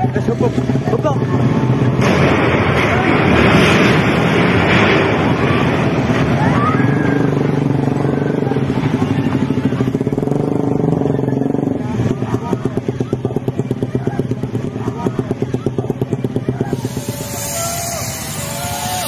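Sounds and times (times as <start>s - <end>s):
noisy commotion: 0.0s - 19.0s
vehicle engine running: 0.0s - 19.0s
voices: 5.1s - 19.0s
fast pulsing throb: 16.6s - 19.0s.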